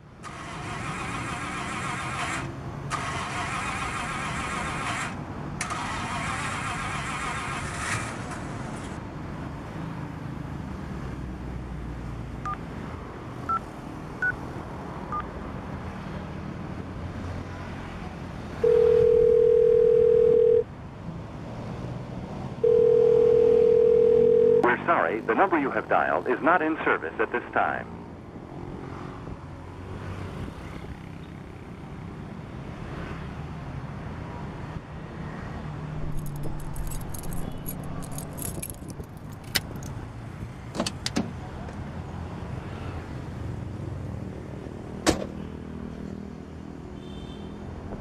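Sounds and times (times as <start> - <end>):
car starter cranking: 0.2 - 8.2, 36.0 - 40.0
phone key beeps: 18.6 - 20.6
steady phone tones: 18.6 - 20.6, 22.6 - 24.9.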